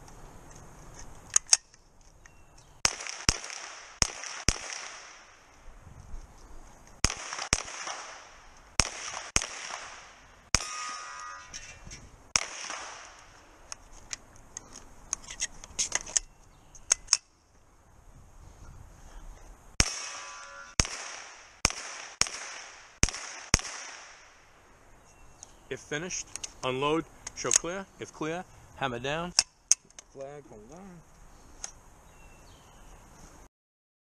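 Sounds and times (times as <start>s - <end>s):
soft sharp cracks: 2.8s - 5.6s, 6.8s - 11.0s, 12.3s - 17.3s, 20.8s - 24.5s
gunshots with echo: 7.0s - 11.0s, 12.4s - 13.2s, 20.8s - 24.2s.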